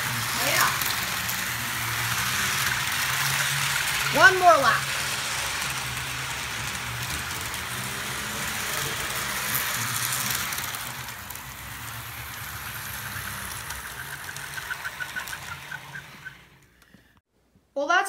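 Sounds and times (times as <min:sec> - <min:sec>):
model train whirring on rails: 0:00.0 - 0:17.2.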